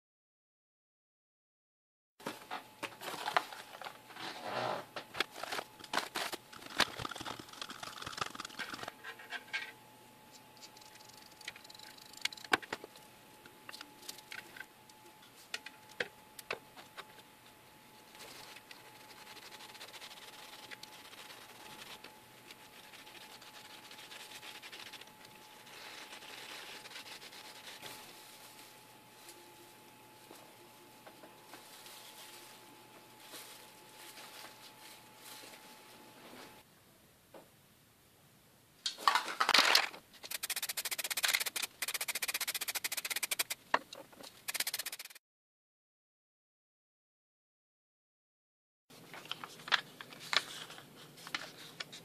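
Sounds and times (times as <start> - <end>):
spray can ball rattling: 6.7 - 8.9, 40.2 - 43.6, 44.4 - 45.2
wet swab scratching on steel: 18.1 - 27.9, 40.3 - 43.6, 44.5 - 45.2.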